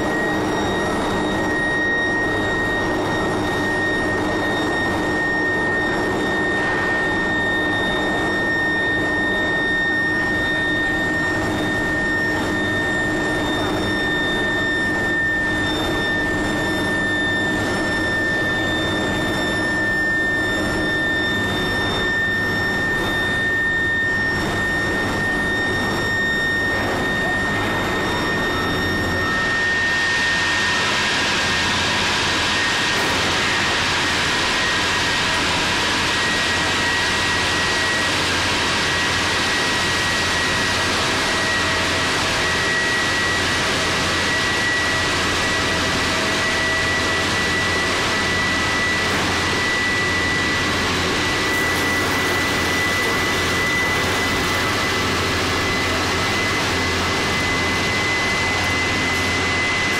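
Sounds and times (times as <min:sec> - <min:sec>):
constant high whine: 0:00.0 - 0:59.9
industrial machinery running: 0:00.0 - 0:59.9.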